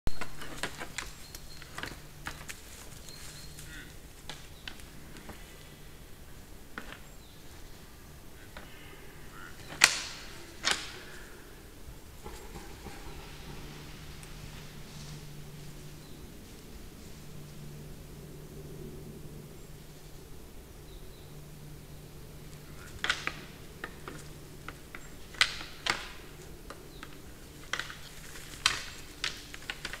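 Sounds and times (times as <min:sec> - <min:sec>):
antlers clashing: 0:08.5 - 0:15.3, 0:22.6 - 0:30.0.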